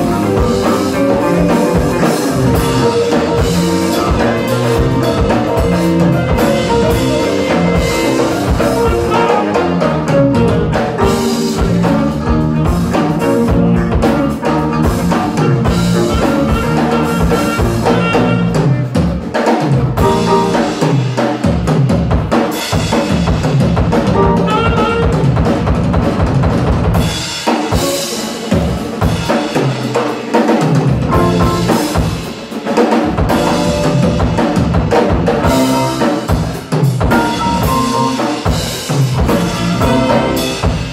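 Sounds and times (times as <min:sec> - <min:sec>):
electric bass: 0:00.0 - 0:27.3, 0:30.8 - 0:32.4, 0:33.0 - 0:40.9
drum kit: 0:00.0 - 0:40.9
electric guitar: 0:00.0 - 0:40.9.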